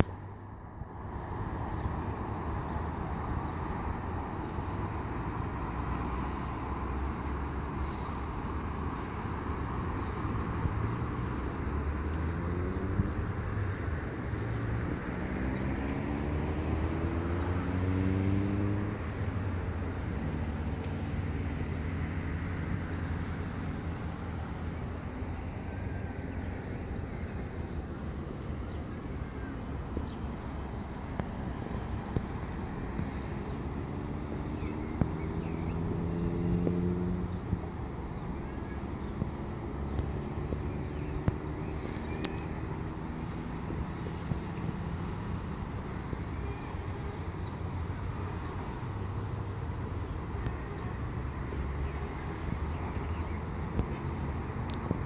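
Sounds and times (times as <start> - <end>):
distant road traffic rumble: 0.0 - 55.0
vehicle engine accelerating: 9.6 - 46.2.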